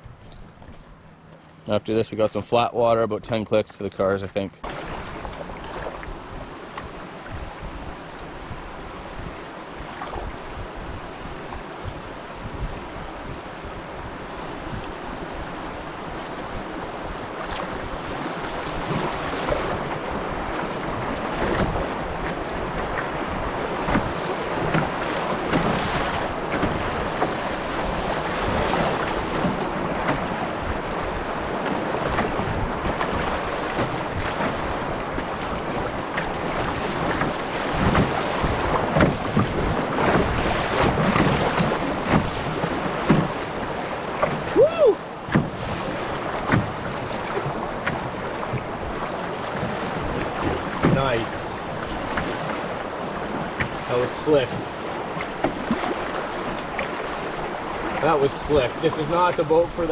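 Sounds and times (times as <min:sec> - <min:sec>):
wind buffeting microphone: 0:04.6 - 0:58.9
whitewater rapids rushing: 0:17.5 - 0:59.9.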